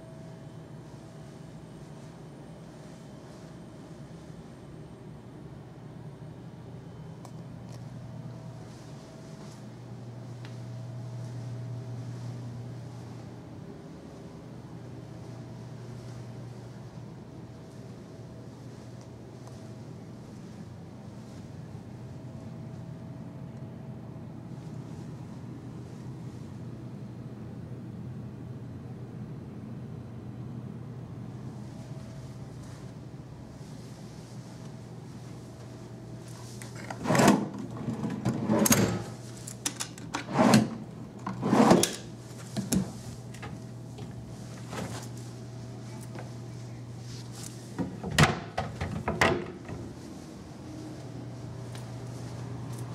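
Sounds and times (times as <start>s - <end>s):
low room hum: 0.0s - 52.9s
wooden drawers sliding and knocking: 36.8s - 39.2s, 40.0s - 43.6s.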